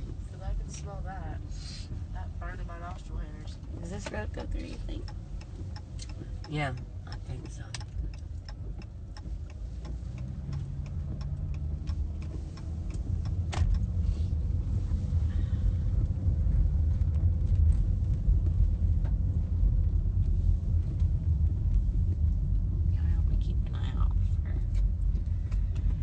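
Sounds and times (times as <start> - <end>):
car cabin road rumble: 0.0 - 26.0
steady ticking: 0.1 - 14.0.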